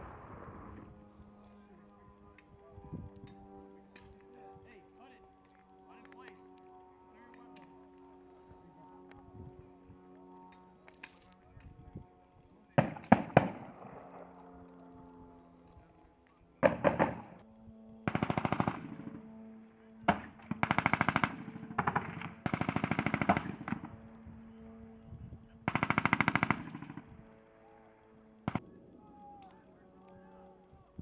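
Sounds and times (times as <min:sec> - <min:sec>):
automatic gunfire bursts: 0:18.1 - 0:19.0, 0:20.1 - 0:23.9, 0:25.7 - 0:27.0.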